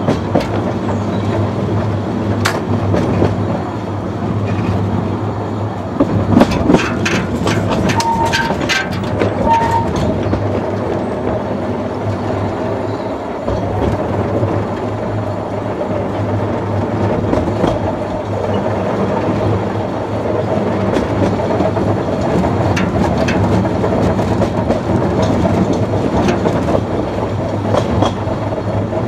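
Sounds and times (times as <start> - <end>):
locomotive drone: 0.0 - 29.0
wheel clicks on rails: 6.0 - 12.7, 13.4 - 29.0
high-pitched squeaks: 7.8 - 8.7, 9.4 - 10.1.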